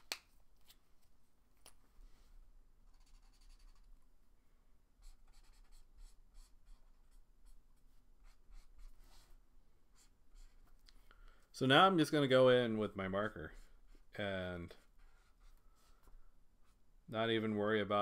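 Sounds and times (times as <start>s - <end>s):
marker scratching on paper: 2.9s - 3.9s, 5.0s - 7.6s, 8.2s - 10.7s, 14.8s - 16.8s.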